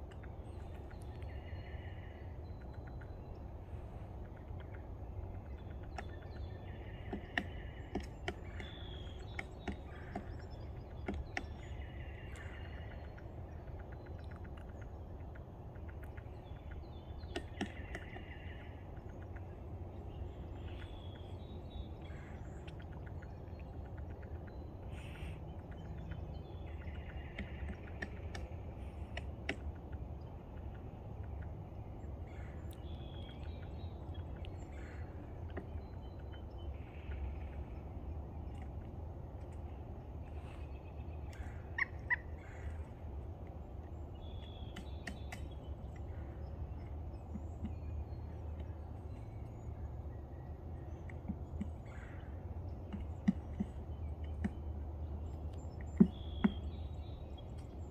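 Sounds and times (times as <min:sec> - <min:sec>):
birds singing: 0:00.0 - 0:57.9
low background rumble: 0:00.0 - 0:57.9
woodpecker knocking on log: 0:06.9 - 0:12.1, 0:17.2 - 0:18.4, 0:26.9 - 0:29.7, 0:51.1 - 0:52.2, 0:52.8 - 0:54.7, 0:55.7 - 0:56.8.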